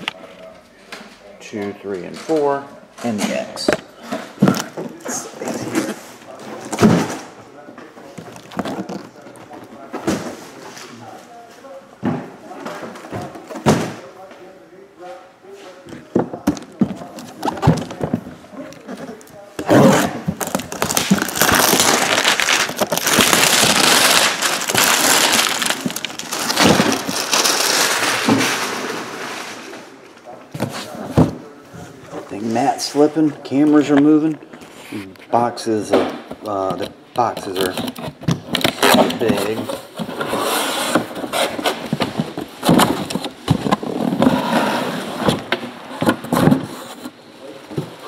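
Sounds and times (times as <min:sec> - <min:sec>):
cardboard boxes knocking and scraping: 0:16.0 - 0:18.4, 0:19.6 - 0:27.5, 0:38.2 - 0:47.2
plastic wrap crinkling and tearing: 0:18.8 - 0:29.2.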